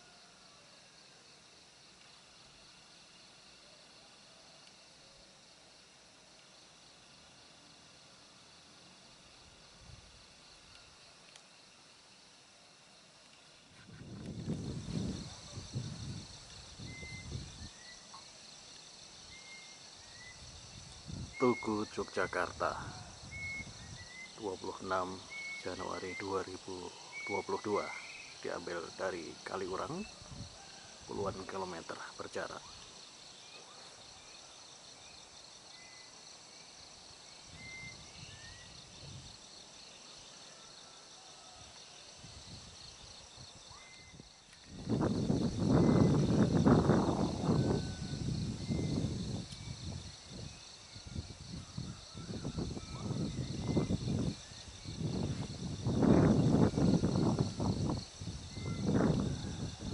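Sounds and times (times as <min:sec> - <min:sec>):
crickets chirring: 0:00.0 - 0:59.9.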